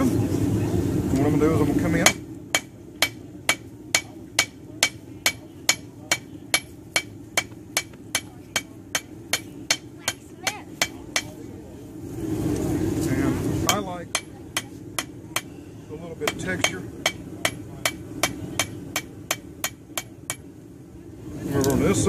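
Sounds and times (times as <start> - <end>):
hammer striking metal on anvil: 2.0 - 11.4, 13.7 - 15.5, 16.2 - 20.5.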